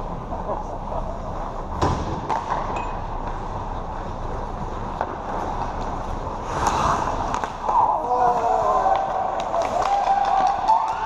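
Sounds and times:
hockey sticks clacking puck: 0:02.3 - 0:11.0.

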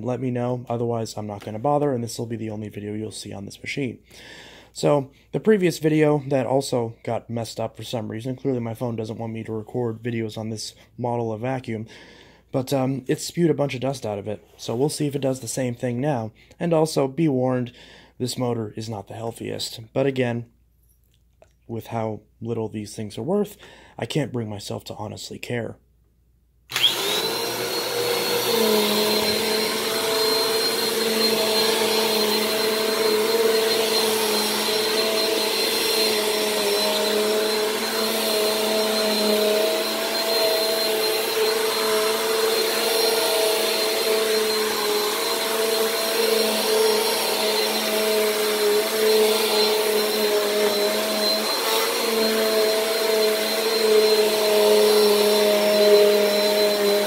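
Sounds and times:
vacuum brush rolling over carpet: 0:26.7 - 0:57.0
vacuum cleaner motor whining: 0:26.7 - 0:57.0.

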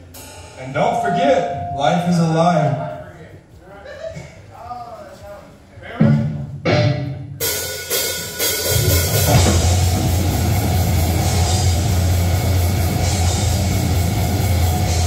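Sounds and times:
heavy metal band playing live: 0:06.7 - 0:15.0
sharp drum hits: 0:08.8 - 0:11.7.

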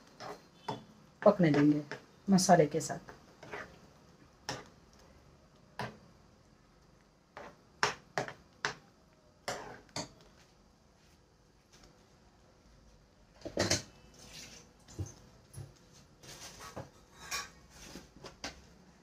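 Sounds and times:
metal spoon scraping frying pan: 0:00.0 - 0:02.0, 0:03.4 - 0:03.8, 0:04.5 - 0:04.7, 0:09.4 - 0:10.1, 0:16.3 - 0:18.0.

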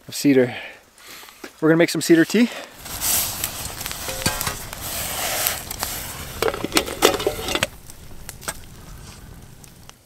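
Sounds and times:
campfire hissing: 0:00.1 - 0:10.0
metal pot clanking and scraping: 0:03.9 - 0:07.8.

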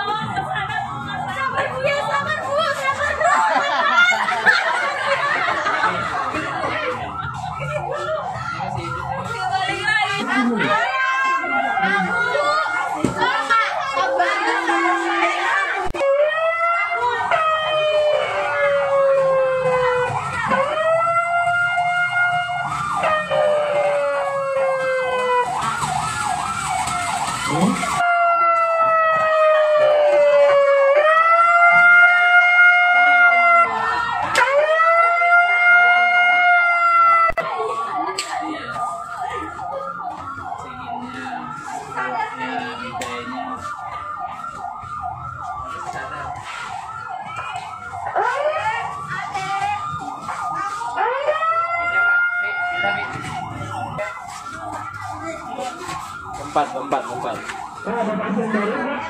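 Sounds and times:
ambulance siren wailing: 0:00.0 - 0:59.0.

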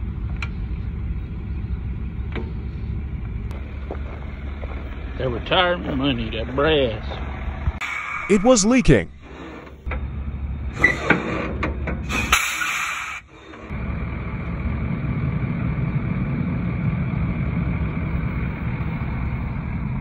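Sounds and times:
truck diesel engine rumbling: 0:00.0 - 0:20.0
air hiss bursts: 0:12.1 - 0:13.3.

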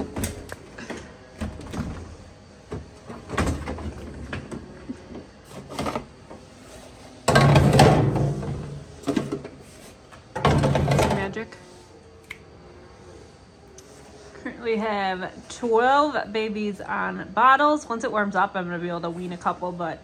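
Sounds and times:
plastic bottles clattering: 0:07.2 - 0:09.6, 0:10.3 - 0:11.4.

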